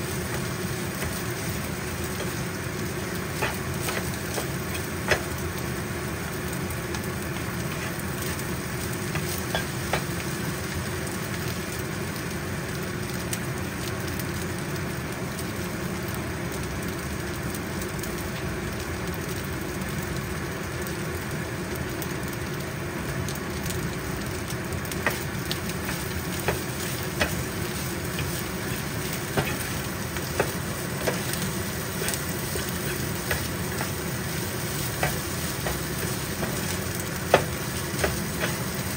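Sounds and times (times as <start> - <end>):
fried rice sizzling in a pan: 0.0 - 38.9
spatula knocking against pan: 3.4 - 5.3, 25.0 - 34.0, 34.9 - 38.6.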